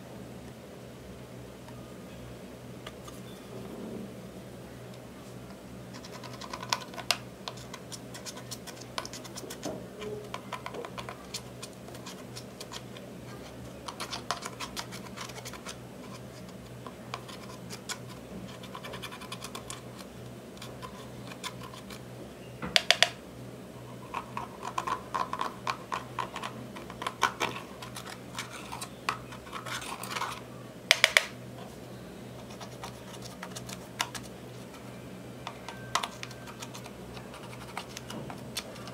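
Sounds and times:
metal tool scraping eyeshadow: 0:24.3 - 0:30.4.

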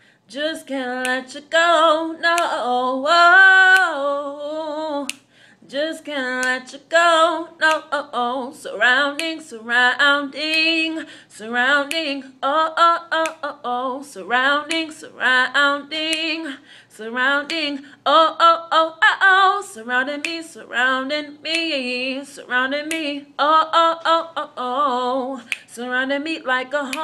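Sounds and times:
singer breathing: 0:00.0 - 0:00.3, 0:05.2 - 0:05.7, 0:11.0 - 0:11.4, 0:16.6 - 0:17.0
woman singing unaccompanied: 0:00.3 - 0:27.0.

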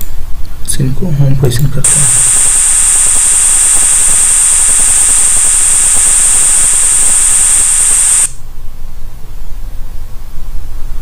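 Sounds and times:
electronic hiss with whistling: 0:01.8 - 0:08.4.

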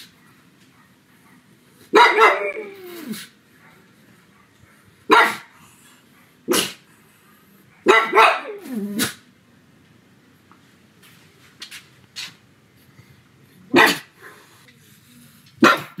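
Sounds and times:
dog barking: 0:01.9 - 0:02.7, 0:05.1 - 0:05.5, 0:06.5 - 0:06.8, 0:07.8 - 0:09.2, 0:13.7 - 0:14.1, 0:15.6 - 0:16.0
dog crying: 0:02.0 - 0:03.3.

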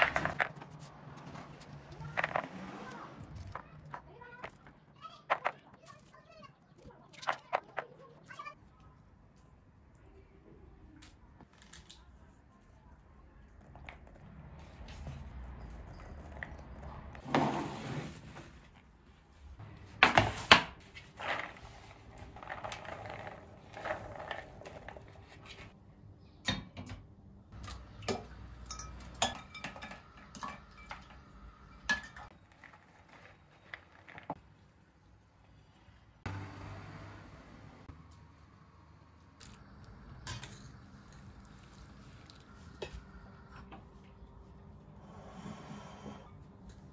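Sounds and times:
dishes and metal pot clattering: 0:27.6 - 0:32.3.

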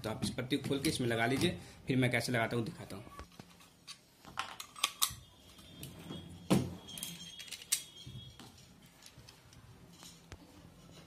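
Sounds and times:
small parts clicking and clinking: 0:06.9 - 0:11.0.

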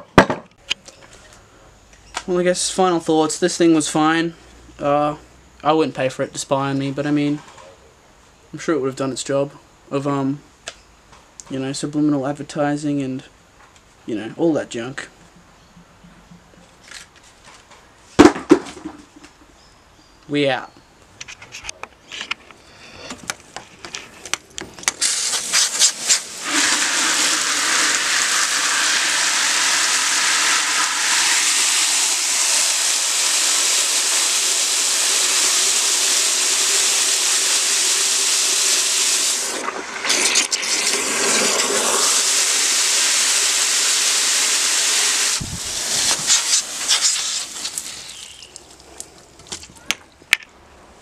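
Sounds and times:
hose nozzle spraying water: 0:24.9 - 0:48.8.

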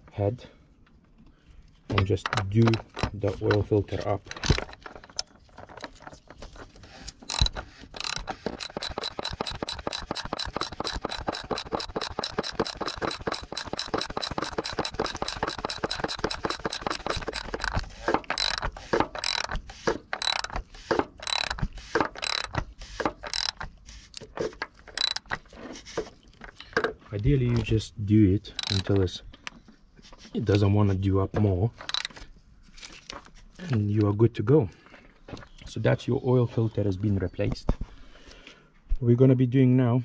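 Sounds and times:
ratchet wrench clicking: 0:02.3 - 0:03.7, 0:07.2 - 0:25.4, 0:28.5 - 0:28.9, 0:31.8 - 0:32.1.

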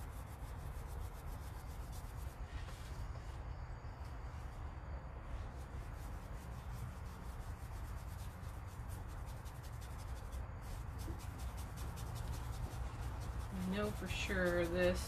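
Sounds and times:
paintbrush rubbing on denim: 0:00.0 - 0:15.0.

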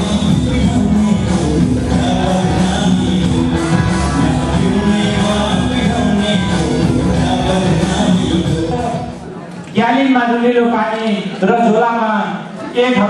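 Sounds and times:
loud dance song with singing: 0:00.0 - 0:09.4.

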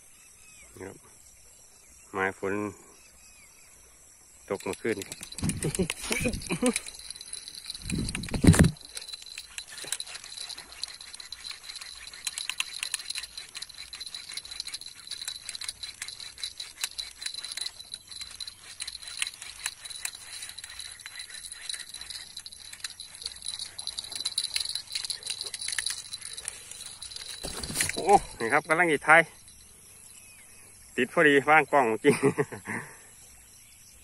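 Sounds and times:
light clicks and rattles: 0:04.5 - 0:28.6.

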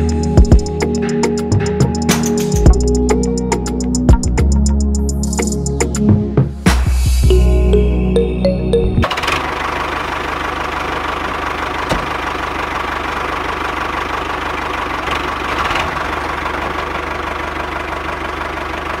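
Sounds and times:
model tractor engine droning: 0:09.0 - 0:19.0.

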